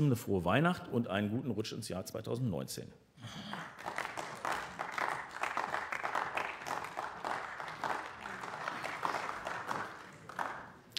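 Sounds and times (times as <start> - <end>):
sparse group clapping: 3.4 - 10.9.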